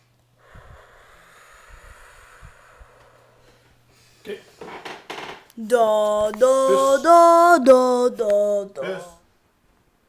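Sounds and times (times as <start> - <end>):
low hum: 0.0 - 4.2.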